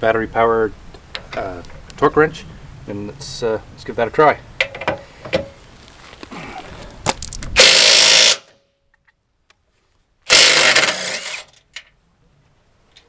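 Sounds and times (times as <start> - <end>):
battery-powered impact wrench bursts: 7.6 - 8.5, 10.3 - 11.5.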